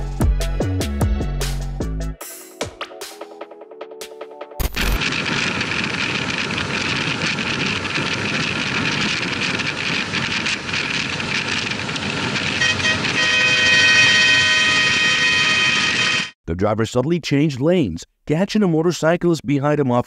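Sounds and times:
road and wind noise: 5.0s - 15.3s
vehicle horn: 12.4s - 16.4s.

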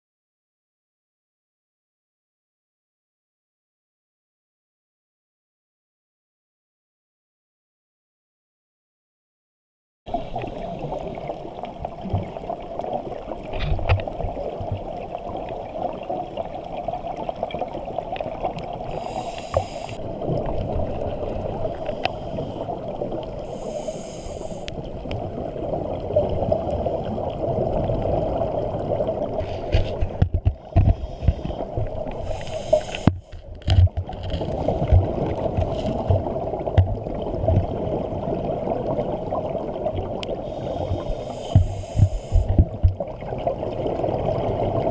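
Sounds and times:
muffled underwater rush: 10.1s - 44.9s
regulator bubbles gurgling: 10.1s - 44.9s.

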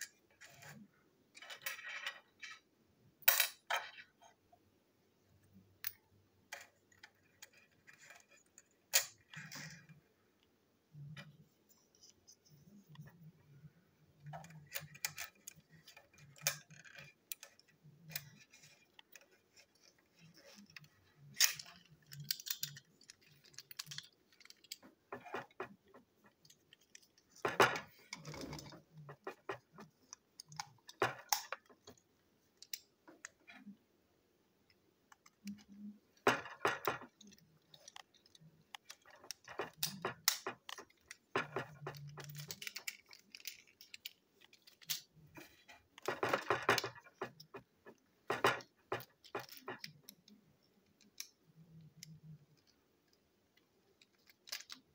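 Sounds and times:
plastic toy parts clicking: 14.2s - 32.0s, 32.6s - 33.7s, 34.7s - 54.9s.

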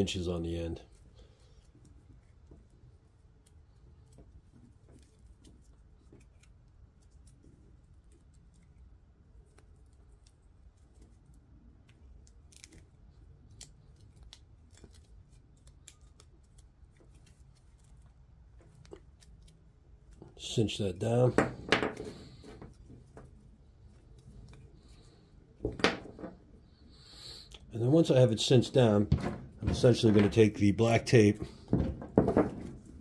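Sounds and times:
low room hum: 0.0s - 33.0s
rope rustling and clicking: 0.9s - 21.2s, 21.9s - 26.6s.

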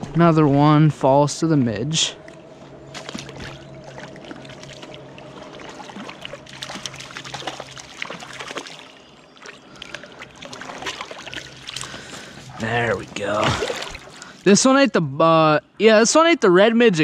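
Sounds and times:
faint hum: 0.0s - 17.0s
creek water trickling: 2.1s - 14.8s
fish splashing: 2.9s - 14.4s.

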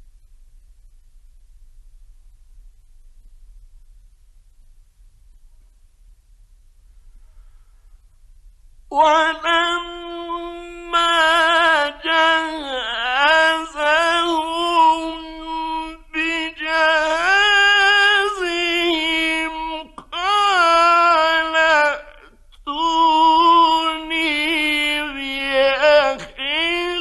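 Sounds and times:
man reciting melodically: 8.9s - 27.0s.

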